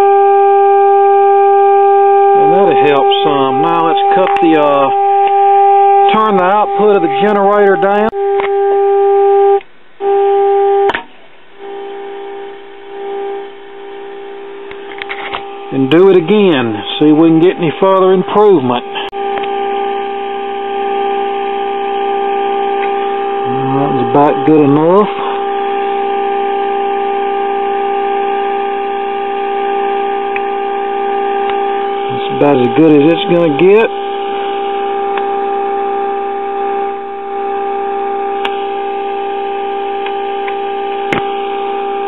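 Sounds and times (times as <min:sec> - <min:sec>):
low test tone from radio speaker: 0:00.0 - 0:42.0
click: 0:40.0 - 0:41.3.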